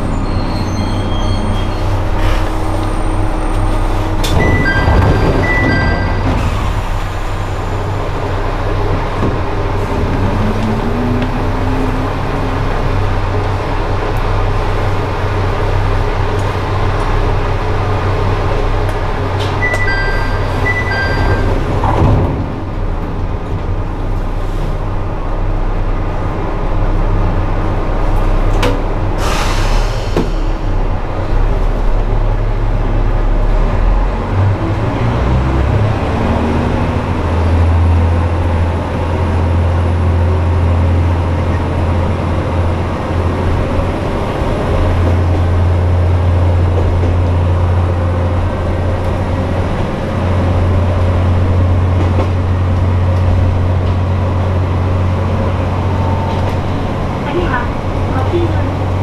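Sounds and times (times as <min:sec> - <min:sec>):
train doors sliding shut: 0:00.0 - 0:08.0, 0:19.3 - 0:23.0, 0:28.1 - 0:32.1
diesel railcar engine idling: 0:00.0 - 0:34.7, 0:36.4 - 0:59.0
two-tone beeps: 0:04.4 - 0:06.2, 0:19.6 - 0:21.6
air hiss: 0:29.2 - 0:30.6.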